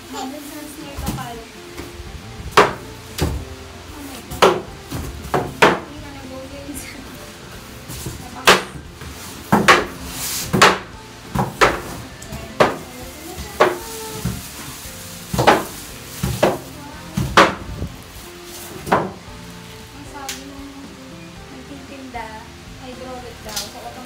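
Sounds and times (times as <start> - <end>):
background music: 0.0 - 24.0
knocks and bumps of cardboard box: 7.9 - 17.8.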